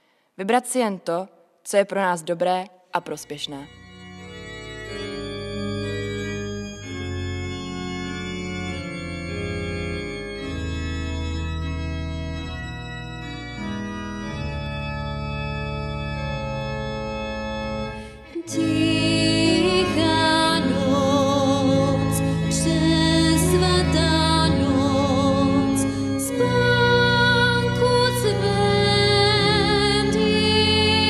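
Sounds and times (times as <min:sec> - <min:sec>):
organ playing chords: 0:03.2 - 0:31.0
bowed violin: 0:03.3 - 0:31.0
woman singing with vibrato: 0:18.3 - 0:31.0.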